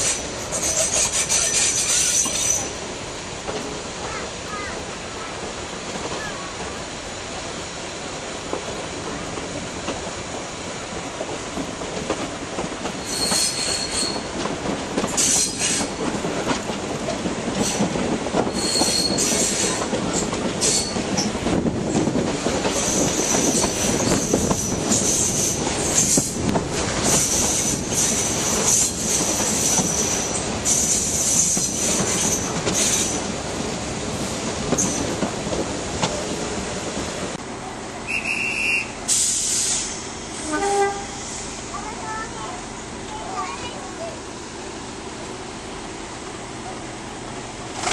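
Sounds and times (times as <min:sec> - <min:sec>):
train wheels squealing on rails: 0:00.0 - 0:02.8, 0:12.8 - 0:16.3, 0:17.5 - 0:26.4, 0:27.0 - 0:33.3, 0:34.7 - 0:35.2, 0:38.0 - 0:41.7.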